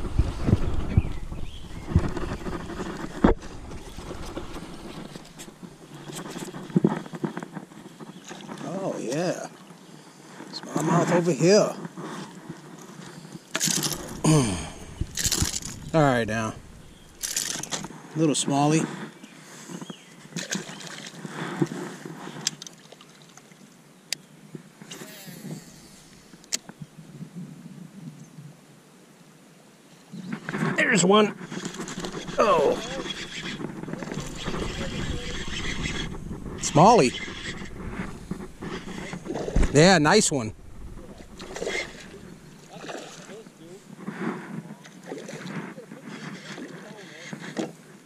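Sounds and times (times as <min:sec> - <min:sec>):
wind rumble on microphone: 0:00.0 - 0:08.6, 0:13.8 - 0:17.9, 0:30.2 - 0:46.4
water trickling and splashing: 0:20.4 - 0:21.3, 0:22.4 - 0:23.8, 0:36.7 - 0:44.0.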